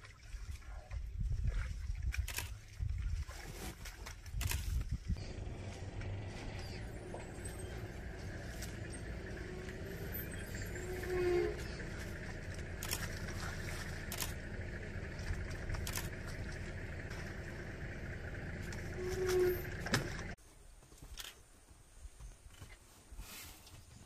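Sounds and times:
outdoor background noise: 0.0 - 24.0
vehicle engine idling: 5.2 - 20.4.

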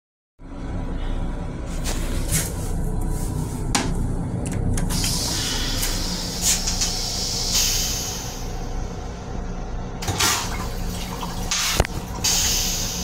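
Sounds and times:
low rumble: 0.4 - 13.0
toilet flushing hiss: 4.9 - 8.8, 10.0 - 13.0.

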